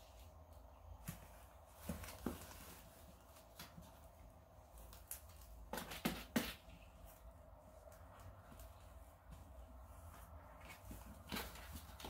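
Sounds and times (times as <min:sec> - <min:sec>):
kittens scratching on cardboard: 0:00.0 - 0:12.0.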